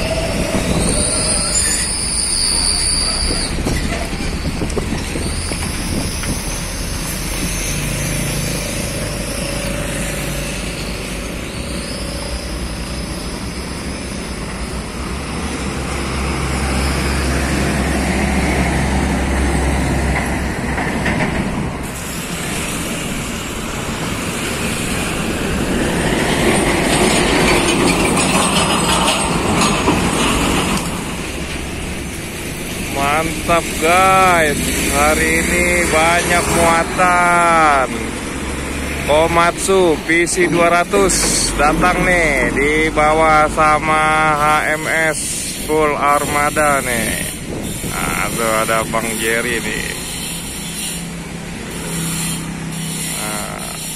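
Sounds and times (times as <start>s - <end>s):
high thin squealing: 0.0s - 14.8s, 43.3s - 53.9s
trucks and motorcycles passing: 2.7s - 53.9s.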